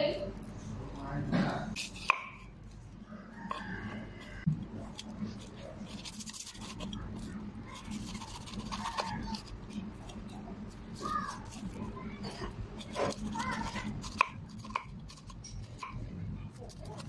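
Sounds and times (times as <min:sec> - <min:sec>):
knife slicing pineapple rind: 0:01.8 - 0:02.5, 0:04.9 - 0:17.0.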